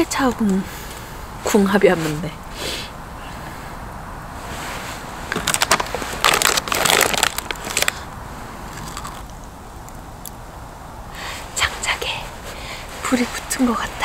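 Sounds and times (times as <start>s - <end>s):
foil snack bag crinkling: 5.3s - 8.0s, 8.7s - 9.3s.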